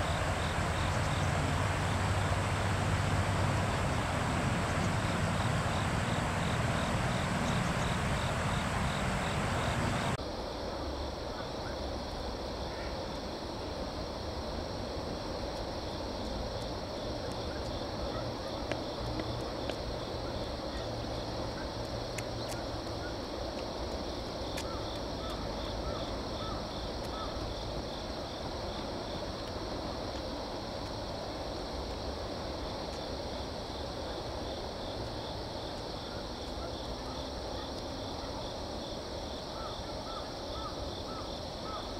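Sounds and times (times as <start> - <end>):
rushing water: 0.0 - 10.2
insects trilling: 0.0 - 41.9
wind: 0.0 - 41.9.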